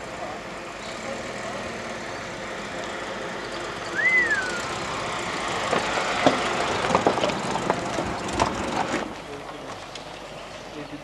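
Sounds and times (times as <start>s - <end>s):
car engine at low revs: 0.0s - 11.0s
short gliding whistle: 3.9s - 4.7s
tyres crunching over gravel: 4.2s - 11.0s.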